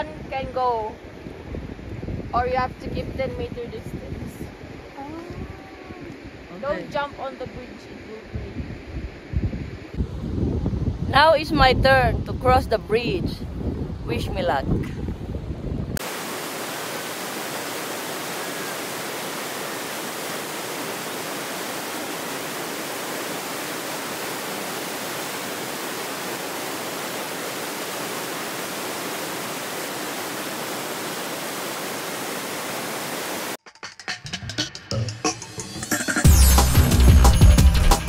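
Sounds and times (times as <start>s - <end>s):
river rapids rushing: 16.0s - 33.6s.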